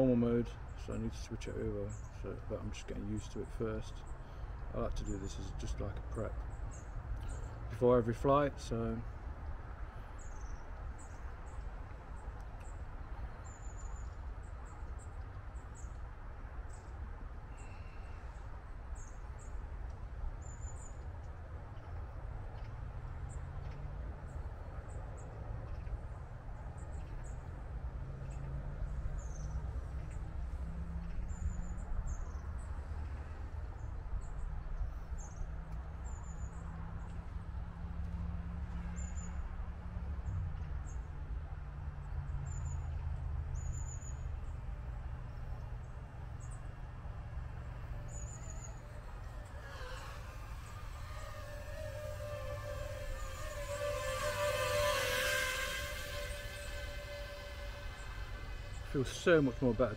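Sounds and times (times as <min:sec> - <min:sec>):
low steady hum: 0:42.0 - 0:59.9
bird chirps: 0:47.7 - 0:59.9.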